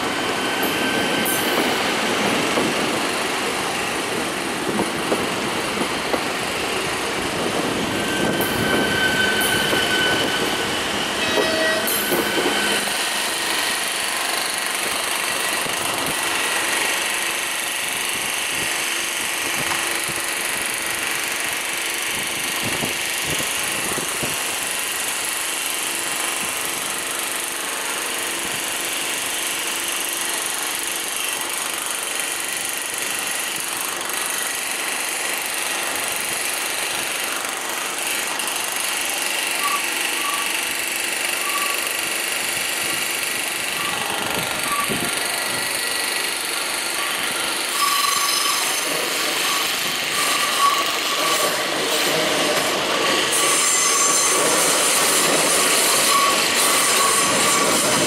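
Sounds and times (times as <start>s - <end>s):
electric train whine and hum: 0.0s - 58.0s
wheel squeals: 7.7s - 14.2s, 39.0s - 58.0s.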